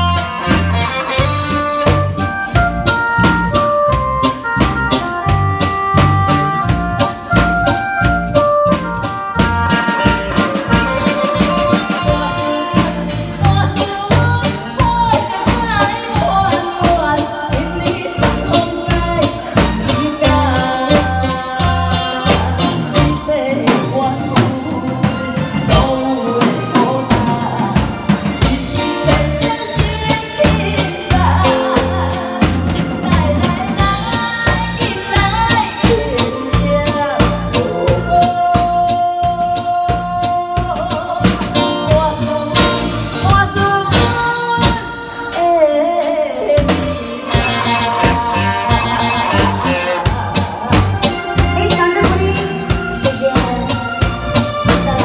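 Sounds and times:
live band playing: 0.0s - 55.0s
woman singing into microphone: 10.4s - 53.8s.

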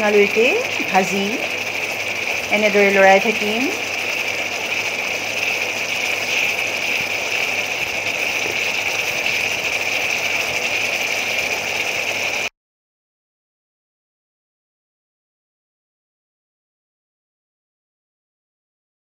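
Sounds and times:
food sizzling in hot oil: 0.0s - 12.5s.

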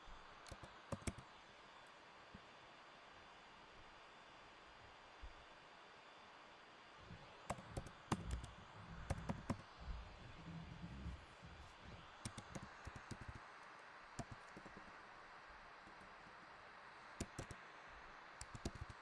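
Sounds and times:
computer keyboard keystrokes: 0.4s - 1.2s, 7.4s - 9.7s, 12.2s - 14.9s, 17.2s - 17.6s, 18.4s - 19.0s.

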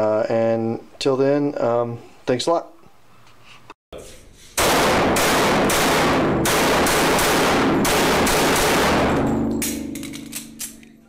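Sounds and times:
rapid automatic gunfire: 4.6s - 9.5s
low ringing tone: 9.3s - 11.0s.

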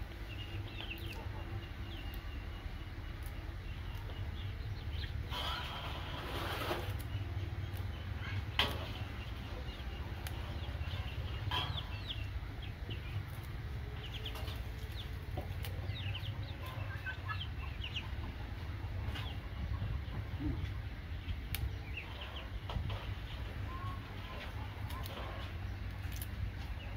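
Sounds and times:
chickens clucking and chirping: 0.0s - 26.9s
steady low rumble: 0.0s - 26.9s
stems snapping: 3.0s - 4.4s, 6.5s - 8.0s, 9.8s - 11.8s, 13.0s - 16.0s, 21.4s - 21.7s, 24.8s - 26.7s.

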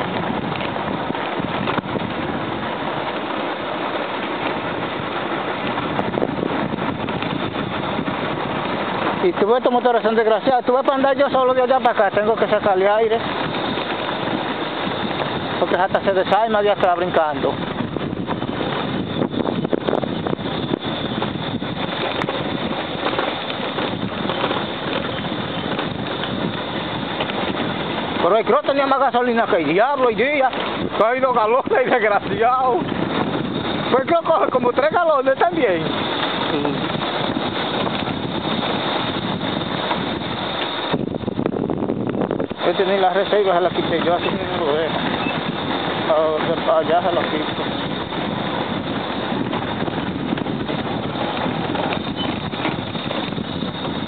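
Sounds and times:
knocks and rattles of bike: 0.0s - 54.0s
motorcycle engine running: 0.0s - 54.0s
road rumble: 0.0s - 54.0s
wind: 0.0s - 54.0s.

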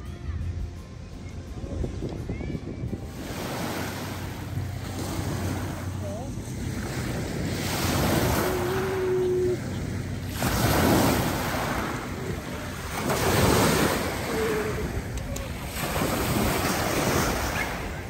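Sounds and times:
wind rushing over microphone: 0.0s - 18.0s.

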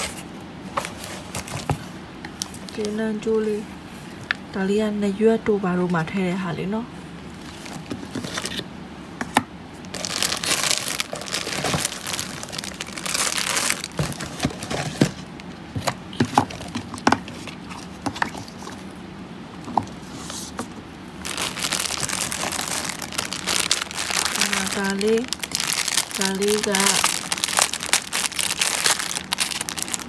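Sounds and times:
plastic packaging crinkling: 9.9s - 15.2s, 21.2s - 30.0s.

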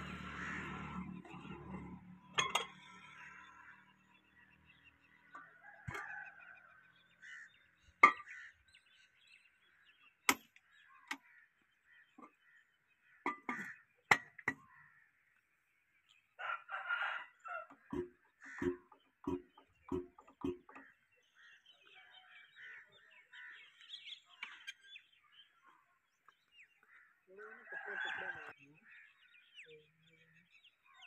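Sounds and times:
chickens calling: 16.4s - 21.4s.

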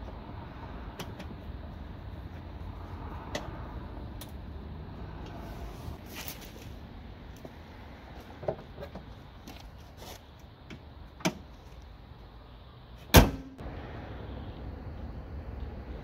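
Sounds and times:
car hood slamming shut: 13.1s - 13.6s.

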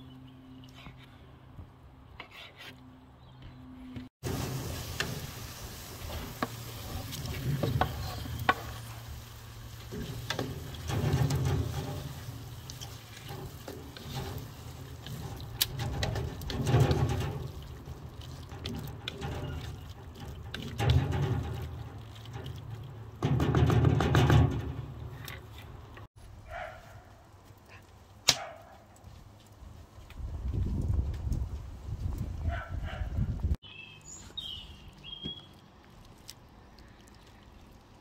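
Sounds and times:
faint sizzle: 4.2s - 15.6s
spatula scraping and sloshing sauce: 4.3s - 26.0s.

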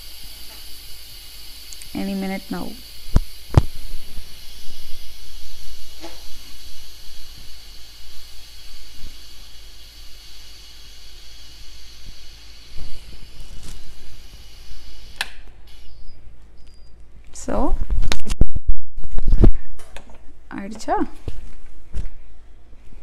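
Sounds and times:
pressure cooker valve hissing: 0.0s - 16.2s.

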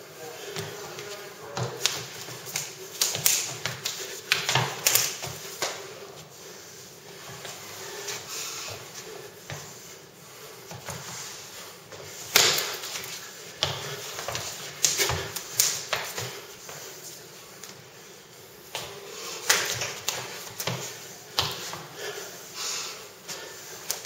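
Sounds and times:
forearms and hands slapping: 1.7s - 5.8s, 12.3s - 13.2s, 14.2s - 16.4s, 18.8s - 21.7s.

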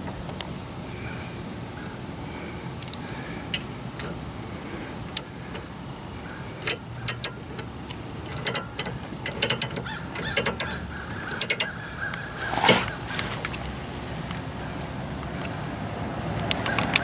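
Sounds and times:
jack ratchet clicking: 2.8s - 4.2s, 5.1s - 5.8s, 6.5s - 13.8s.

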